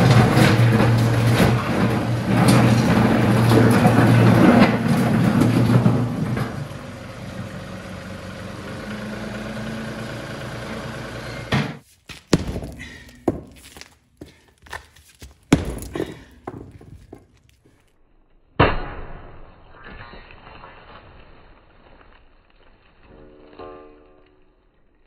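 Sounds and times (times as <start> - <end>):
concrete breaking thunks: 0.0 - 6.6, 11.5 - 14.0, 15.4 - 17.1
diesel tractor engine running: 0.0 - 11.8.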